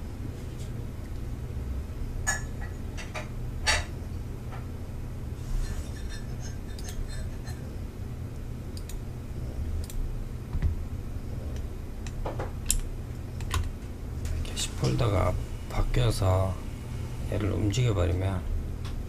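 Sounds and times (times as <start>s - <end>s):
steady low hum: 0.0s - 19.0s
computer mouse clicks: 8.8s - 9.0s, 9.8s - 10.0s.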